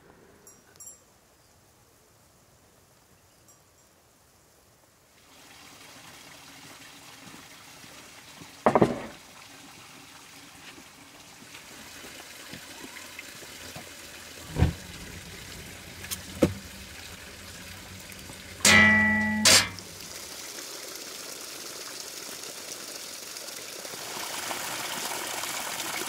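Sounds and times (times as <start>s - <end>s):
water trickling: 5.2s - 26.0s
sharp knocks: 8.7s - 9.2s, 18.6s - 19.8s.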